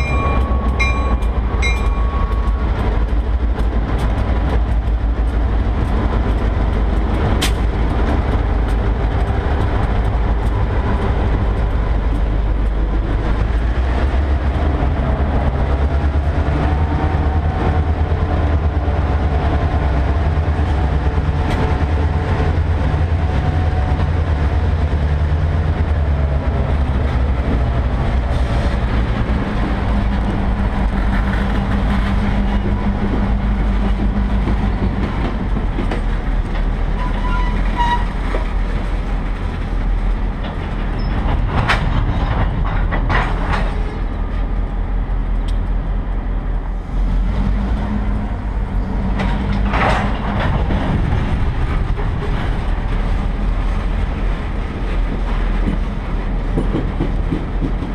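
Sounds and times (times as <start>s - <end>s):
train squeal: 0.0s - 2.8s, 36.9s - 38.4s, 40.9s - 41.4s
train wheels rumbling on rail: 0.0s - 57.9s.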